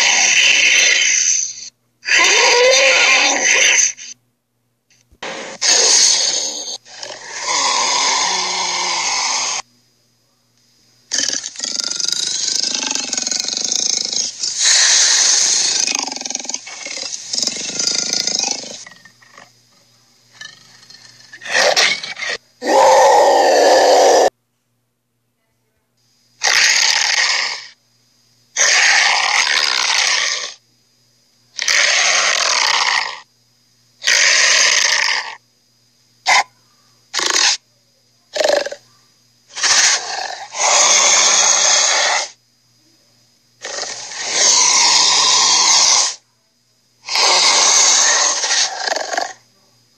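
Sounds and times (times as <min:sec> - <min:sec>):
cartoon dinosaur roars: 0:00.0 - 0:01.4, 0:02.0 - 0:04.0, 0:05.2 - 0:09.6, 0:11.1 - 0:18.8, 0:21.4 - 0:24.3, 0:26.4 - 0:27.7, 0:28.6 - 0:30.6, 0:31.6 - 0:33.2, 0:34.0 - 0:35.4, 0:39.5 - 0:42.4, 0:43.6 - 0:46.2, 0:47.0 - 0:49.4.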